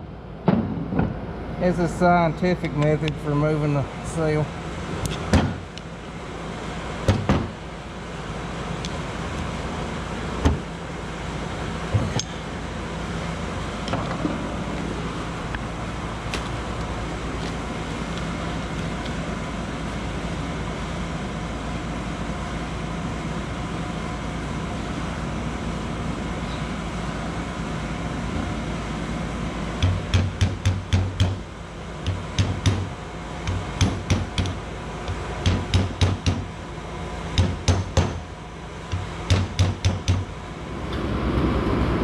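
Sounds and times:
low background hum: 0:00.0 - 0:42.0
steel tool knocking on metal: 0:35.4 - 0:36.4.

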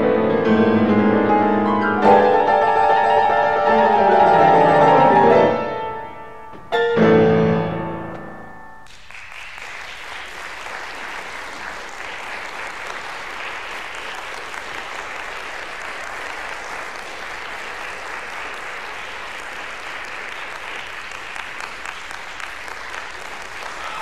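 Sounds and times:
crowd applauding: 0:08.8 - 0:24.0.

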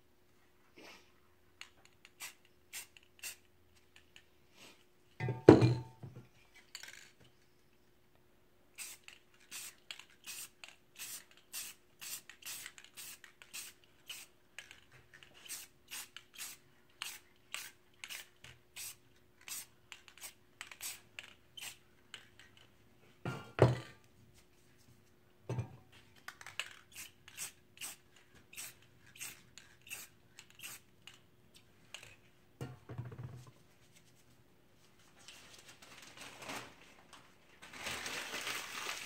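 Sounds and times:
spray paint can hissing bursts: 0:02.1 - 0:03.4, 0:08.8 - 0:14.3, 0:15.4 - 0:21.0, 0:21.6 - 0:21.8, 0:26.9 - 0:30.8.

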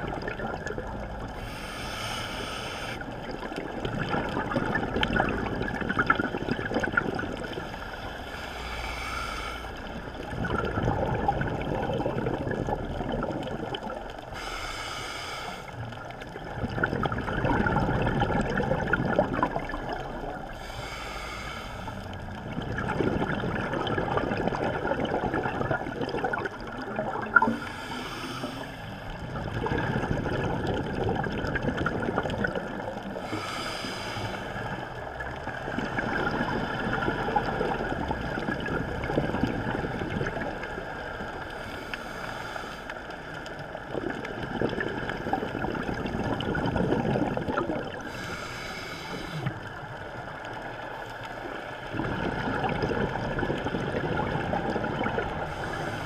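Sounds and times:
bubbling exhaust: 0:00.0 - 0:14.4, 0:16.4 - 0:40.9, 0:43.8 - 0:50.9, 0:51.8 - 0:56.0
regulator hiss on inhale: 0:01.4 - 0:03.2, 0:07.7 - 0:10.0, 0:14.3 - 0:15.9, 0:20.5 - 0:22.1, 0:27.5 - 0:29.1, 0:33.2 - 0:34.9, 0:41.4 - 0:43.4, 0:48.0 - 0:49.7, 0:55.5 - 0:56.0.

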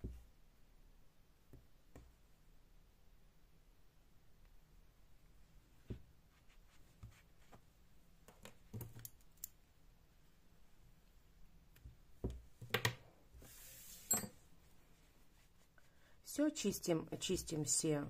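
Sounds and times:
faint clicks and taps: 0:01.5 - 0:02.2.

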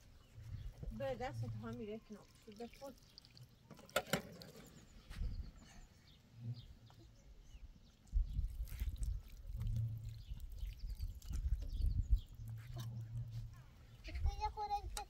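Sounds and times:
water splashing and dripping: 0:00.0 - 0:04.8, 0:08.0 - 0:13.3.

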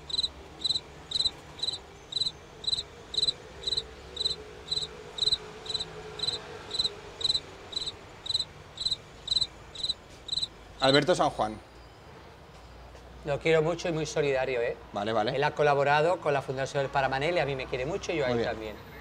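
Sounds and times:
cricket chirping: 0:00.0 - 0:10.5.

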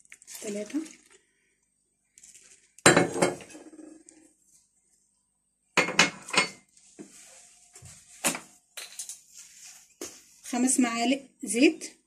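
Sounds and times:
glass clinking on countertop: 0:02.9 - 0:03.5, 0:05.8 - 0:06.6.

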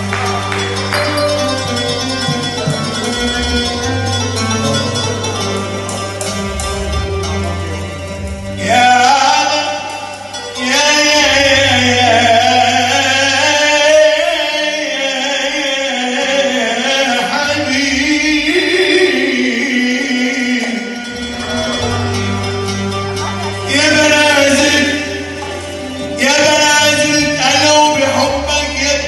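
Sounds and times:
man singing into microphone: 0:08.6 - 0:21.8, 0:23.7 - 0:25.4, 0:26.1 - 0:29.0.

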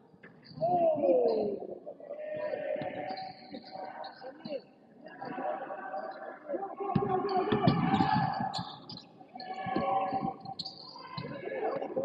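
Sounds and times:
indistinct voices: 0:00.0 - 0:12.0
sneakers squeaking on court: 0:07.6 - 0:11.3.

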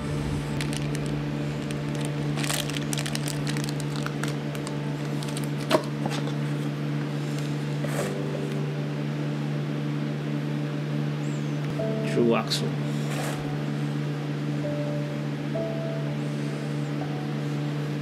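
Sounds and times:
steady low hum: 0:00.0 - 0:18.0
packaging rustling: 0:00.1 - 0:06.6.

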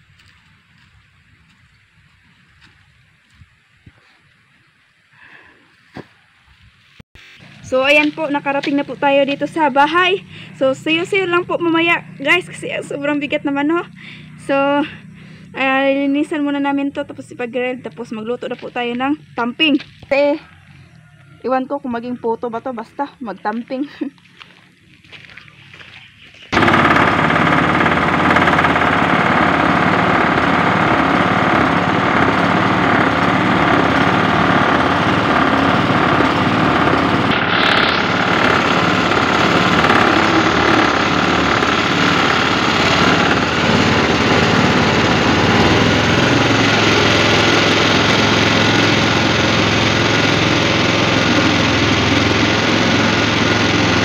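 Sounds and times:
small gasoline engine running: 0:07.4 - 0:18.6, 0:26.5 - 0:54.0.

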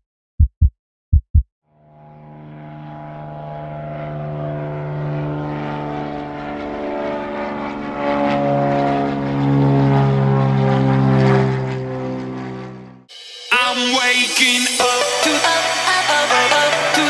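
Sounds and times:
propeller airplane engine drone: 0:01.7 - 0:13.5.

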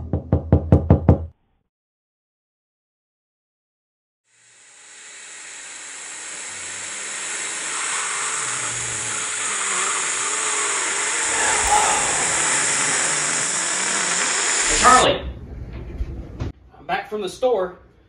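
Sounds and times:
steady hissing noise: 0:10.2 - 0:15.0.

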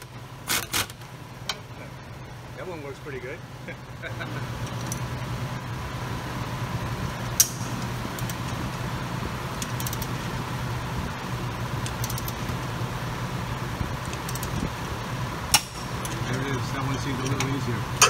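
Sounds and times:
shop hum: 0:00.0 - 0:18.0
torque wrench clicks: 0:09.6 - 0:10.1, 0:11.8 - 0:12.4, 0:14.1 - 0:14.6.

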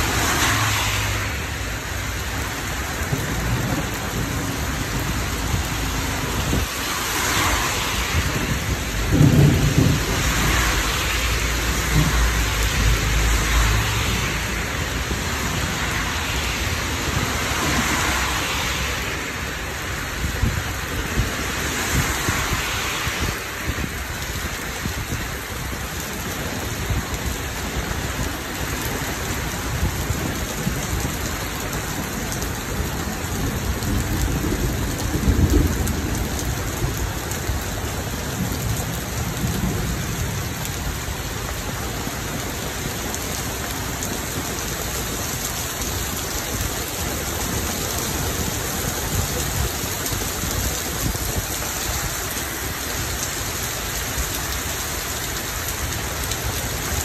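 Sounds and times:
heavy rain falling: 0:00.0 - 0:57.0
thunder rumble: 0:02.9 - 0:16.4, 0:20.2 - 0:51.6.

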